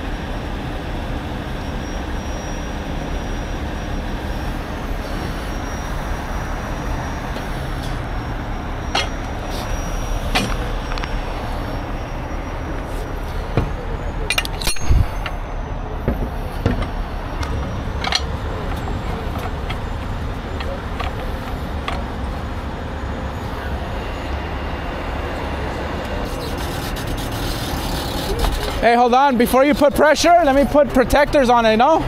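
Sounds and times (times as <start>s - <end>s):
freeway traffic: 0.0s - 32.0s
metal chain clinking: 14.2s - 15.4s
heavy thump: 16.0s - 17.0s.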